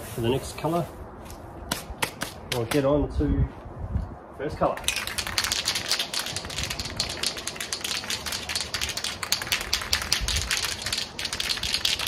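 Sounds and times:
spray can ball rattling: 0:04.8 - 0:12.0.

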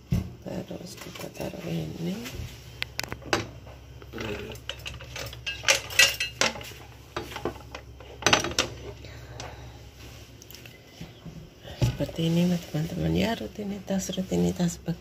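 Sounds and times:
kitchen utensils clattering: 0:04.2 - 0:09.0.

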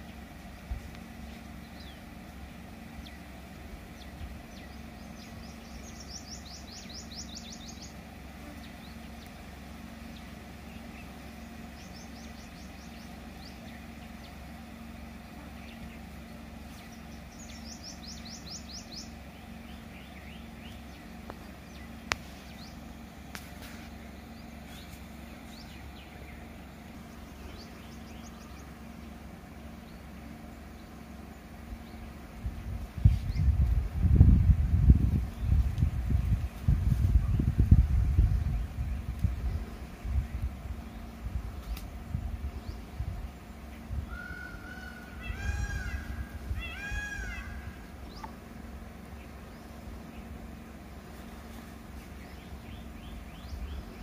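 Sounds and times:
car engine idling: 0:00.0 - 0:33.0, 0:47.2 - 0:54.0.

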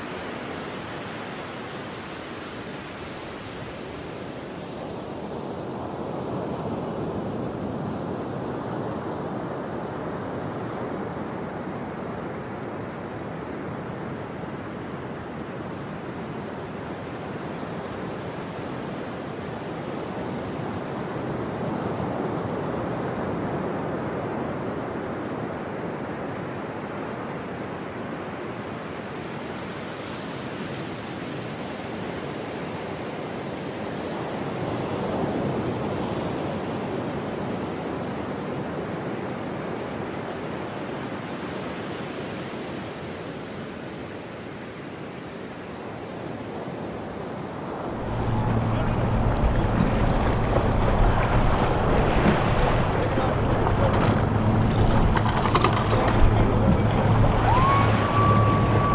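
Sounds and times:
ocean surf breaking: 0:47.7 - 0:58.9.

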